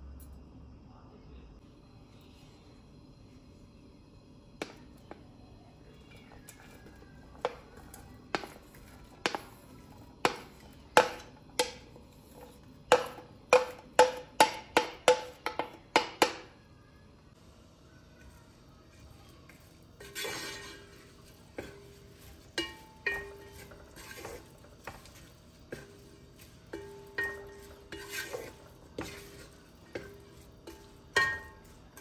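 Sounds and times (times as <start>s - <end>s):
wooden spoon knocking on bowl: 6.5s - 9.6s, 10.2s - 16.5s, 21.5s - 32.0s.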